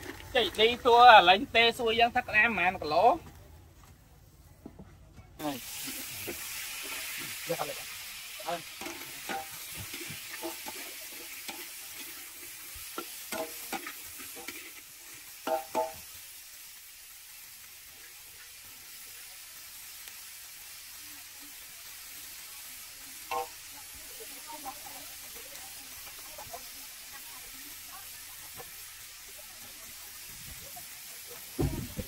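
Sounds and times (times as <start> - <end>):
food sizzling: 0.0 - 3.4, 5.4 - 32.0.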